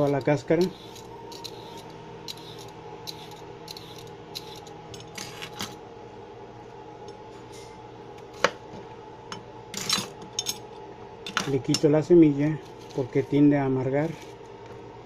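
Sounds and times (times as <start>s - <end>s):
peeler scraping cucumber skin: 0.0s - 5.6s
steady low hum: 0.0s - 15.0s.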